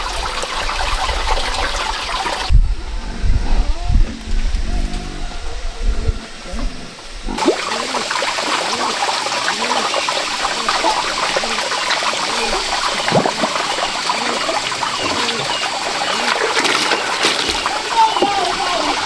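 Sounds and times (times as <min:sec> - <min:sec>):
water gurgles: 0:03.2 - 0:19.0
water running and trickling: 0:07.3 - 0:19.0.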